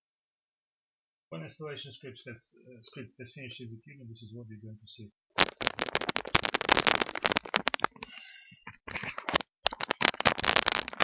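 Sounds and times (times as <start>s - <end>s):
dense crackling and rustling: 5.3s - 11.0s.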